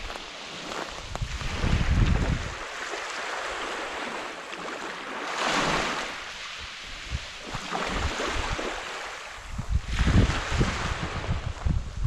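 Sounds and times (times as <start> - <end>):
wind buffeting microphone: 0.0 - 2.7, 6.6 - 12.0
small waves breaking: 0.0 - 11.6.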